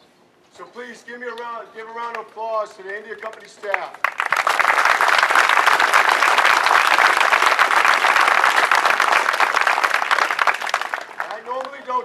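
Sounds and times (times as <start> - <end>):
audience applauding: 4.0 - 11.8.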